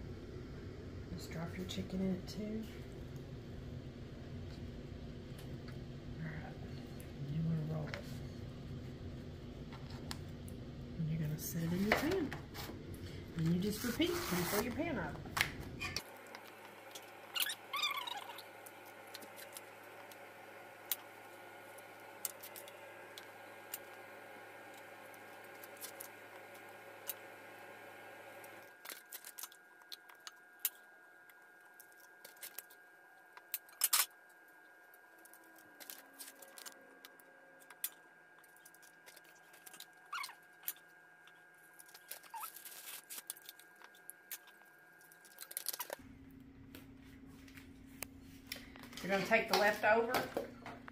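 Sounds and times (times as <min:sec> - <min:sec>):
low hum: 0:00.0 - 0:33.4.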